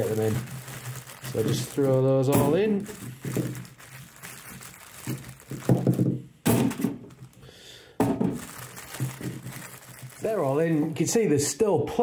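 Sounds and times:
potatoes thudding into basket: 0:01.3 - 0:03.6.

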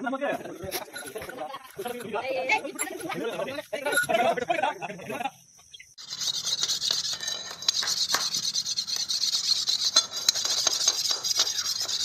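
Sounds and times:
metallic clicks and scrapes on stone: 0:00.7 - 0:04.2, 0:06.0 - 0:12.0.

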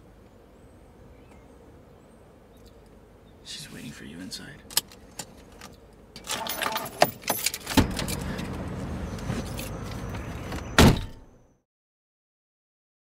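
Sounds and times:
car door shutting with thud: 0:07.7 - 0:11.3.

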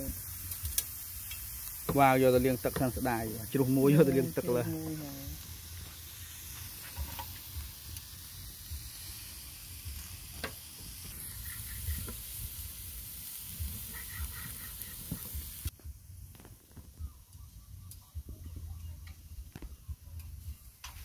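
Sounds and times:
meat sizzling on a grill pan: 0:00.0 - 0:15.7.

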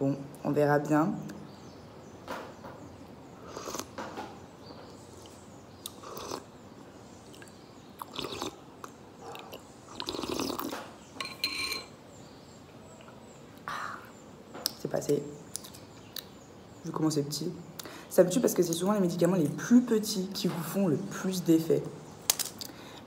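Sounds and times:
mouth and swallowing sounds: 0:05.2 - 0:06.5, 0:07.3 - 0:10.8.

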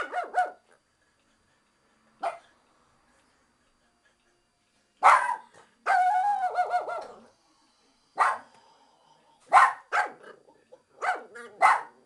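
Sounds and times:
dog barking: 0:00.0 - 0:00.6, 0:02.2 - 0:02.5, 0:05.0 - 0:07.2, 0:08.2 - 0:08.5, 0:09.5 - 0:10.4, 0:11.0 - 0:12.0
dog howling: 0:05.9 - 0:07.3.

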